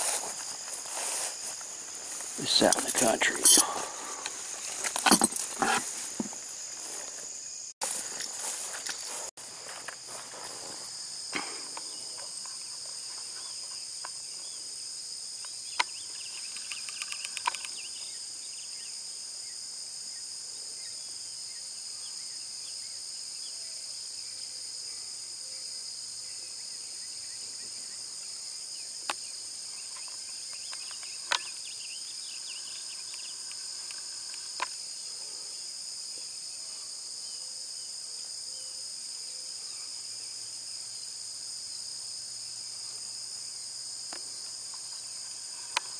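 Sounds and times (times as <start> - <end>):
insects droning: 0.0 - 45.9
sharp clicks: 15.8 - 17.8.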